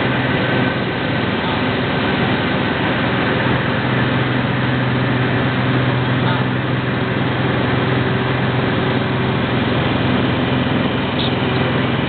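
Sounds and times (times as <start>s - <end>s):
airplane engine droning in cabin: 0.0s - 12.0s.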